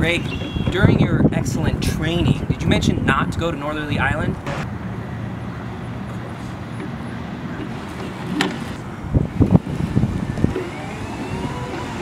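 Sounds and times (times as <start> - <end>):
distant traffic: 0.0 - 12.0
wind: 0.0 - 12.0
low thumps: 4.3 - 4.7.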